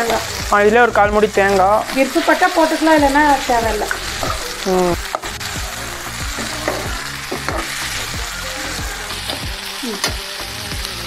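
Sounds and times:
food sizzling in oil: 0.0s - 11.0s
spatula scraping and tapping pan: 6.4s - 7.8s.

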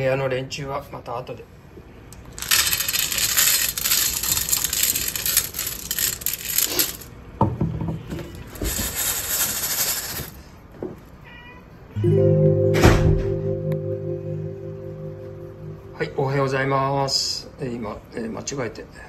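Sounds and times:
small hard objects rattling: 2.2s - 7.1s, 8.3s - 10.4s.

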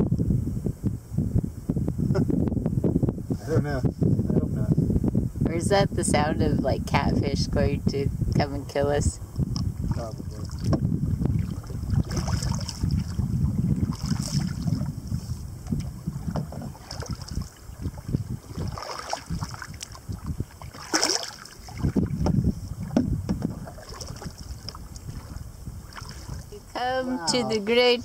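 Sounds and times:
wind rumbling on microphone: 0.0s - 28.0s
water slapping against hull: 9.5s - 26.8s
paddle strokes in water: 9.9s - 26.6s.

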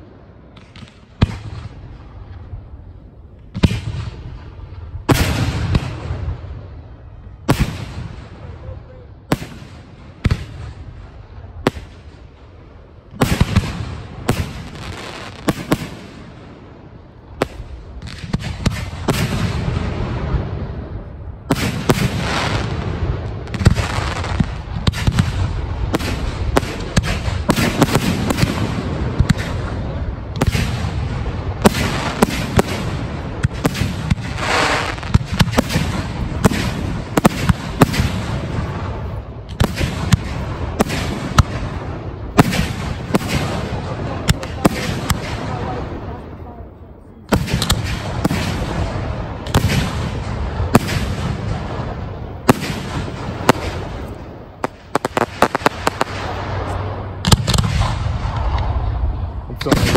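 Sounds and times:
fireworks bangs and crackling: 0.0s - 59.9s.

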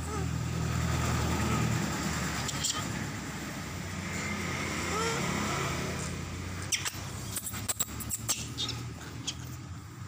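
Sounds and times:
monkey high squeaks and clicks: 2.4s - 2.9s, 6.6s - 9.8s.

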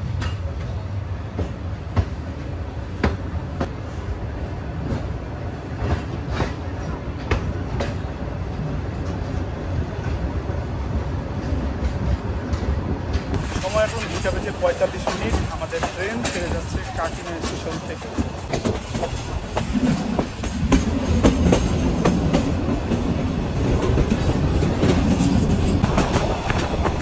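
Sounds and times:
train rumbling on track: 0.0s - 27.0s
train wheels clacking: 11.4s - 27.0s.

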